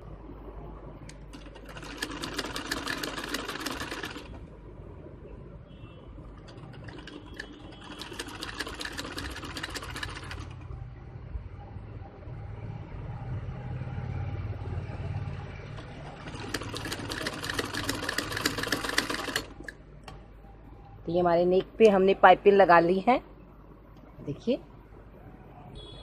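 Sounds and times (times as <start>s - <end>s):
sewing machine stitching: 1.3s - 4.4s, 6.4s - 10.6s, 15.8s - 19.7s.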